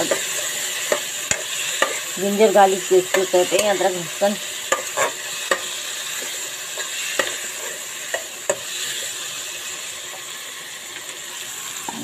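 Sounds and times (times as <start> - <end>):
metal spoon clicking on pan: 0.0 - 2.0, 4.6 - 5.7, 7.2 - 7.4, 8.1 - 8.7
onions and tomatoes sizzling: 0.0 - 12.0.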